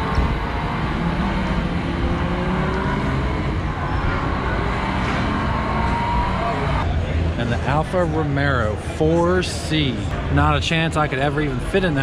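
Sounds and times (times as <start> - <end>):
crowd voices in a hall: 3.2 - 12.0.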